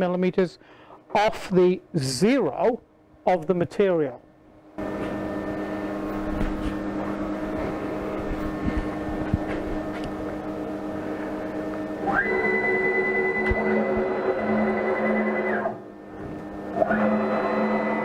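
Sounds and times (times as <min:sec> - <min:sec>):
machine hum: 0:00.0 - 0:18.0
stepper motor whine: 0:04.8 - 0:18.0.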